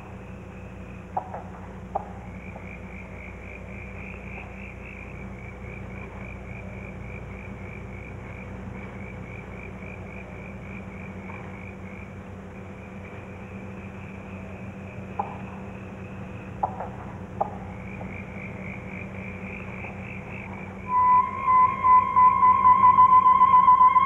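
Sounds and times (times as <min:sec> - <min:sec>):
low hum: 0:07.6 - 0:24.0
animal chirping: 0:20.9 - 0:24.0.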